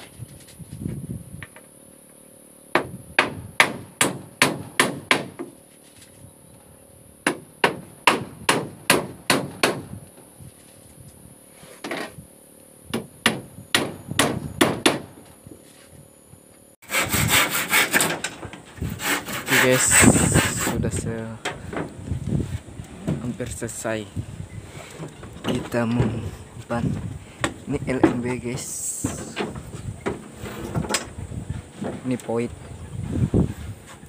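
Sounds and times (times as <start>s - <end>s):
hammer driving nails into wood: 2.8s - 5.5s, 7.3s - 9.9s
handsaw cutting board: 16.8s - 20.9s.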